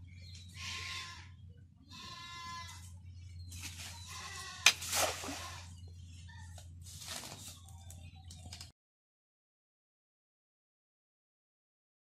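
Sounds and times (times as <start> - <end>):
net slapping and splashing water: 4.7 - 5.5.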